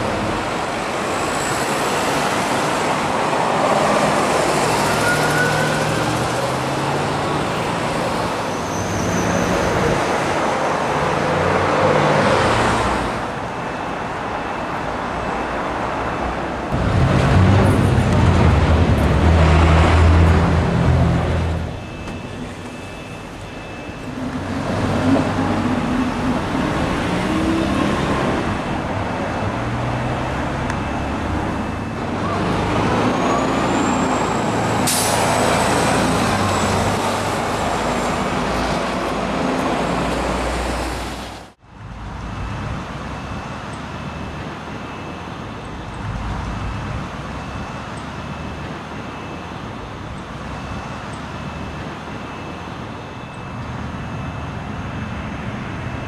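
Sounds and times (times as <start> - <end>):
bus running in traffic: 0.0 - 56.0
outdoor background noise: 0.0 - 56.0
air brake hiss: 34.8 - 35.3.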